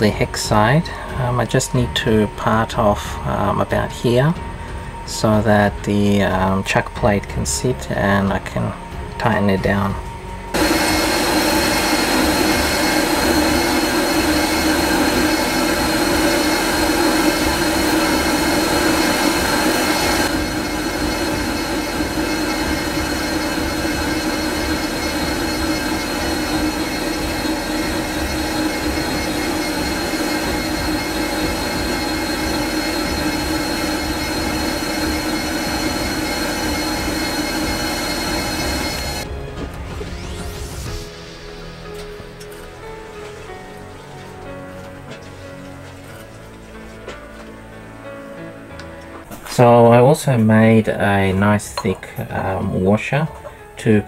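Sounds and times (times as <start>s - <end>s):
lathe running: 9.7s - 39.3s
high ringing tone: 10.5s - 39.3s.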